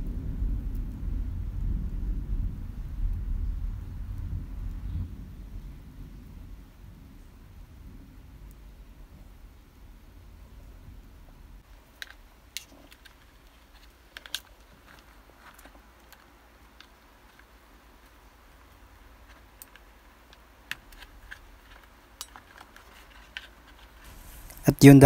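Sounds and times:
wires clicking and tapping: 0:11.6 - 0:24.7.

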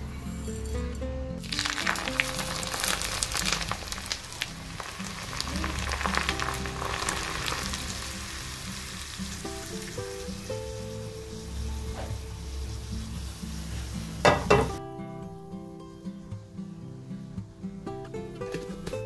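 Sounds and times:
hot oil sizzling and crackling: 0:01.4 - 0:14.8.

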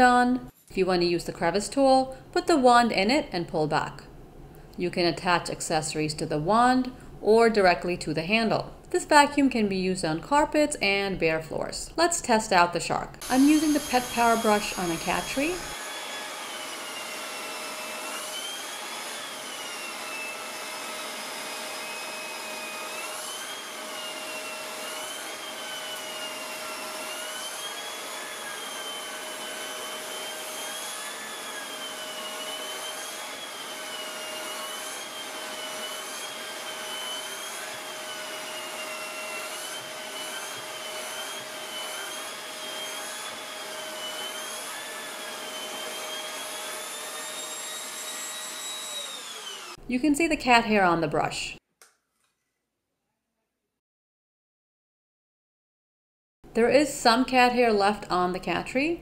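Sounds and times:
vacuum cleaner on carpet: 0:13.2 - 0:20.8, 0:44.2 - 0:49.7.

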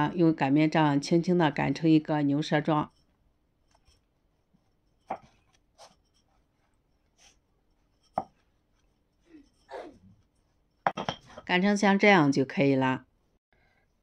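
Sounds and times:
rolling pin rolling dough: 0:02.3 - 0:11.0.

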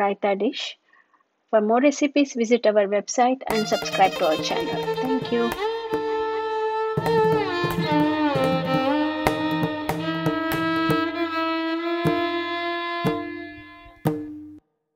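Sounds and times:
melody with sliding notes: 0:03.5 - 0:11.4
sharp percussive hits: 0:03.5 - 0:14.6.

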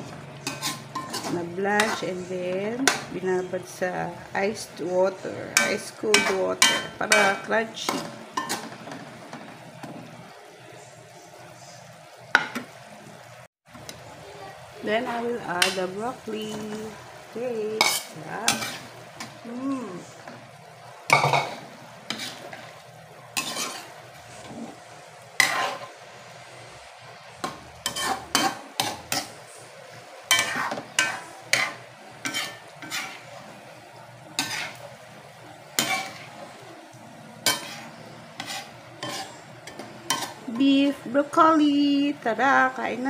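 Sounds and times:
metal spatula scraping a wok: 0:00.0 - 0:03.9, 0:17.6 - 0:20.5, 0:21.1 - 0:26.0, 0:27.4 - 0:29.7, 0:30.3 - 0:35.1, 0:35.7 - 0:36.7, 0:37.4 - 0:41.2
food sizzling in a pan: 0:00.0 - 0:43.0.

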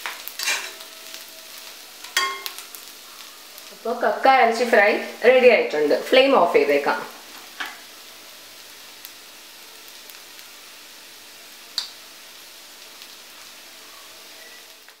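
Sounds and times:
clams sizzling in oil: 0:00.0 - 0:15.0
small oil pops: 0:11.8 - 0:12.0.

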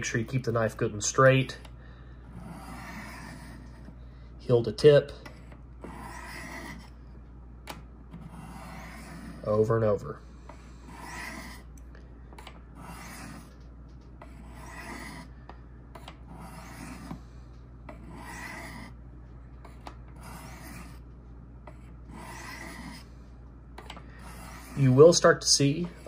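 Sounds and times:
knife rasping on ceramic rods: 0:02.3 - 0:04.0, 0:05.2 - 0:07.0, 0:08.2 - 0:09.7, 0:10.4 - 0:11.8, 0:12.6 - 0:19.0, 0:19.6 - 0:23.2, 0:24.1 - 0:26.0.

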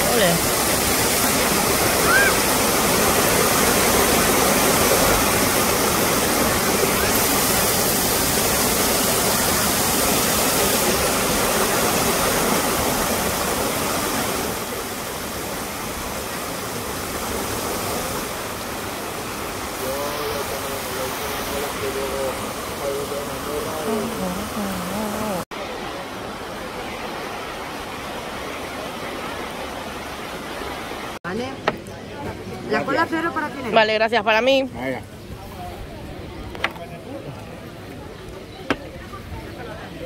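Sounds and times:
waterfall pouring onto rocks: 0:00.0 - 0:24.9
faint voices: 0:19.7 - 0:29.8, 0:34.8 - 0:40.0.

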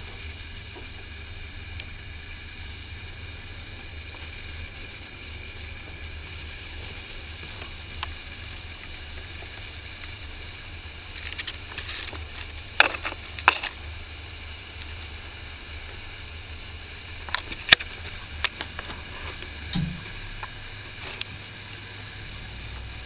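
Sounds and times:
low hum: 0:18.1 - 0:23.0.

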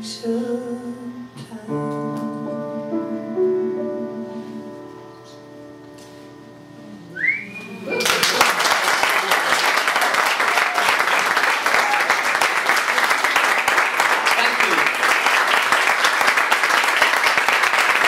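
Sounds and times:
piano chord: 0:00.0 - 0:07.2
rising whistle from audience: 0:07.1 - 0:08.4
audience applause: 0:07.9 - 0:18.0.

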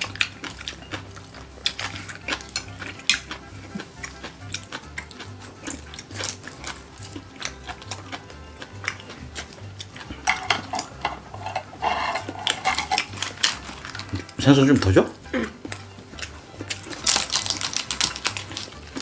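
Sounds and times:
background music with low beat: 0:00.0 - 0:19.0
chopsticks clicking on bowls: 0:10.0 - 0:14.3.

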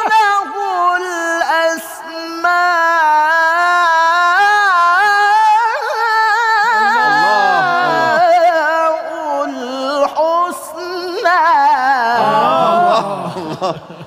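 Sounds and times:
man reciting in melismatic chant: 0:00.0 - 0:14.0
man calling out: 0:06.8 - 0:08.4, 0:12.2 - 0:13.6.

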